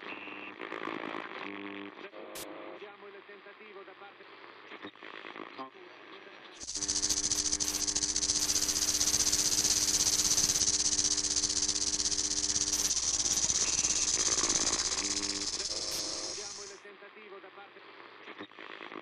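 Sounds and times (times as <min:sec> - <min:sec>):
faint low hum: 0:06.6 - 0:16.8
loud steady hiss: 0:06.6 - 0:16.8.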